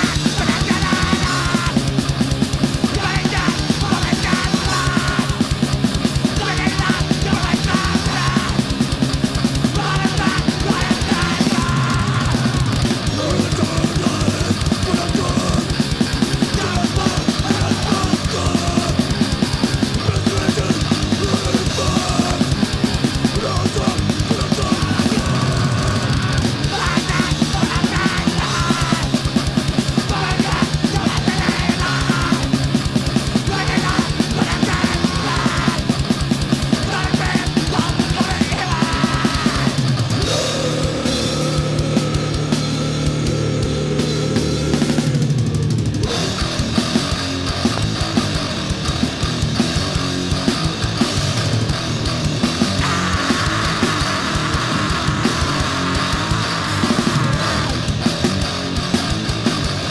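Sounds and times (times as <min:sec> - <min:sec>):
grindcore music: 0:00.0 - 0:59.9.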